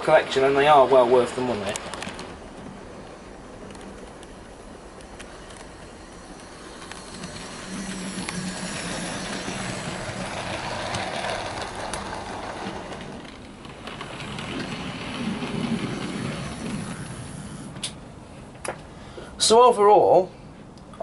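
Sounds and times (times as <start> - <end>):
wheels on rails: 0.0 - 18.9
model train motor hum: 1.5 - 18.0.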